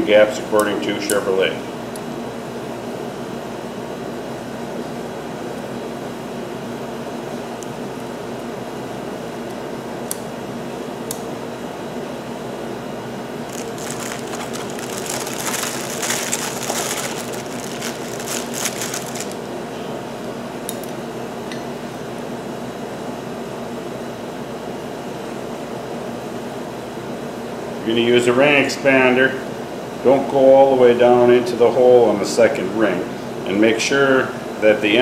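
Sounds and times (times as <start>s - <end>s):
fan humming: 4.4s - 21.6s
crinkly scratchy rustling: 13.5s - 19.4s.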